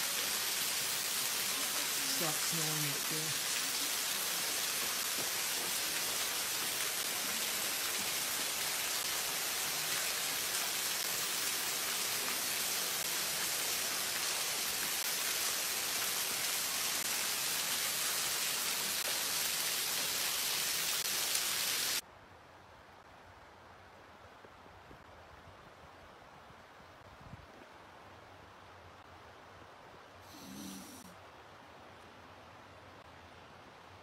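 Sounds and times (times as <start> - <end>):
creek water rushing: 0.0 - 22.0.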